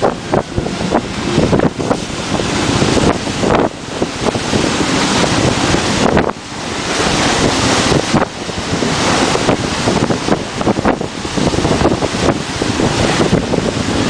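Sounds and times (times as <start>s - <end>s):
water rushing along yacht hull: 0.0s - 14.0s
wind buffeting microphone: 0.0s - 14.0s.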